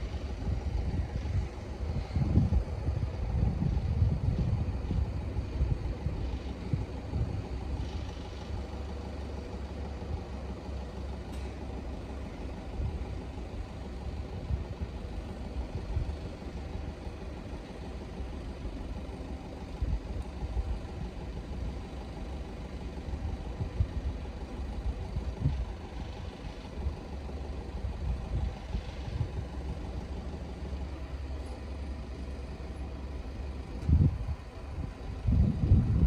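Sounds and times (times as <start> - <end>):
vehicle engine running: 0.0 - 36.0
wind buffeting on microphone: 0.4 - 7.5, 33.8 - 36.0.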